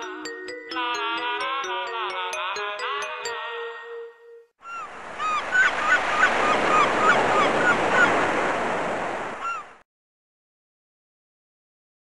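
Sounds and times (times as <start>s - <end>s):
gulls calling: 4.6s - 9.8s
water rushing: 4.8s - 9.8s.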